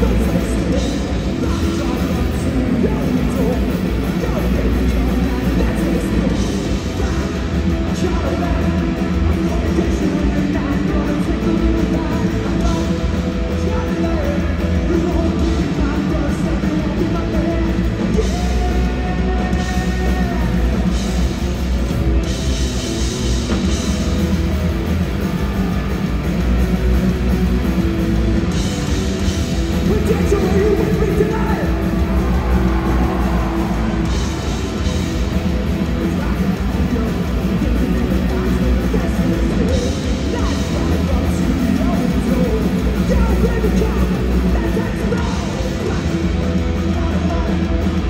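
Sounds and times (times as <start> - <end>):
punk rock band playing live: 0.0 - 48.0.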